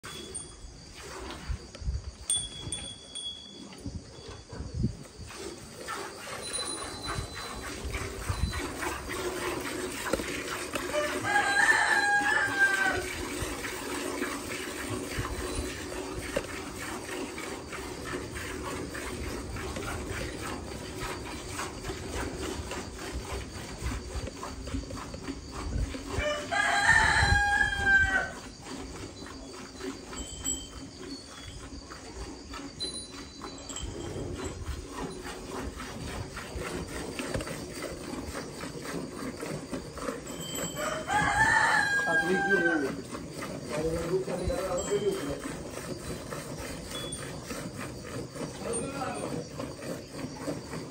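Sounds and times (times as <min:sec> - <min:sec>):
milk squirting into steel bucket: 0:05.2 - 0:23.8
rooster crowing: 0:10.8 - 0:13.1, 0:26.2 - 0:28.4, 0:40.7 - 0:43.0.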